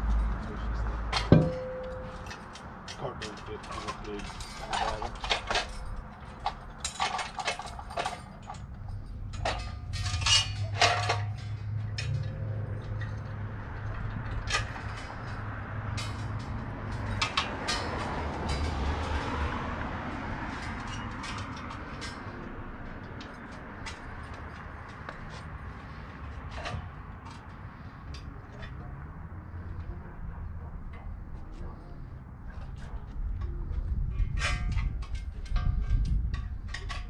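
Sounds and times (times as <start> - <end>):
low engine hum: 8.3 - 37.0.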